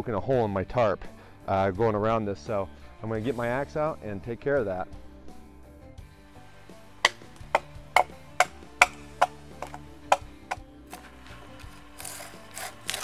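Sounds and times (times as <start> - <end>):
axe striking wood: 7.0 - 11.1
knife blade scraping wood: 7.0 - 13.0.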